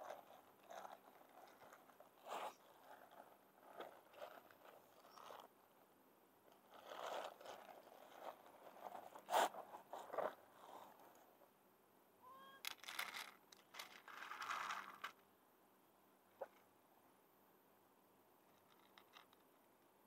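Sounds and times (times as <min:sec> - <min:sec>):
kitten crunching dry kibble: 0:00.0 - 0:05.5, 0:06.5 - 0:10.4, 0:12.7 - 0:15.2
kibble rattling in plastic tray: 0:12.7 - 0:15.2.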